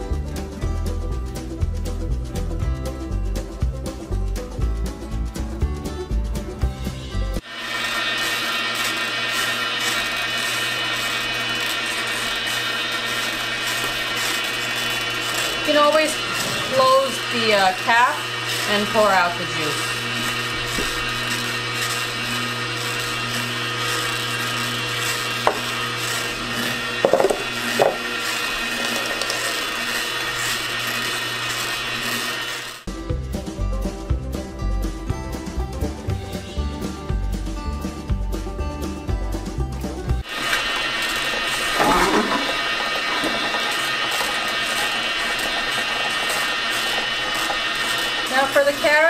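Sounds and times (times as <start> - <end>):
juicer motor humming: 7.3 - 33.2, 39.0 - 49.0
auger crunching apples: 7.4 - 32.9, 40.2 - 49.0
sharp knocks of containers: 27.0 - 28.0.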